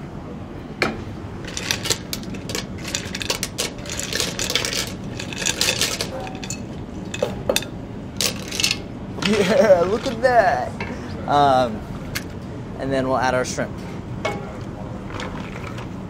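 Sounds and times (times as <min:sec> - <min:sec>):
mussel shells clattering in glass bowl: 0:01.4 - 0:10.3.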